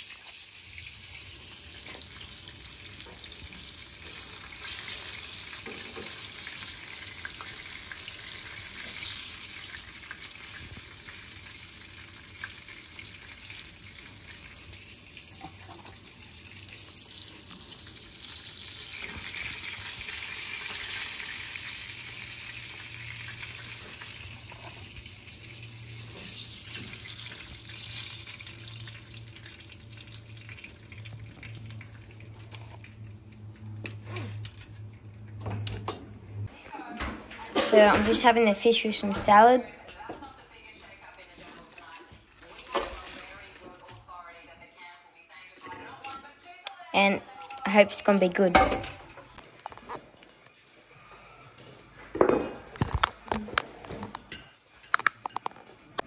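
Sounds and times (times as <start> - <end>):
fish sizzling in hot oil: 0.0 - 34.6.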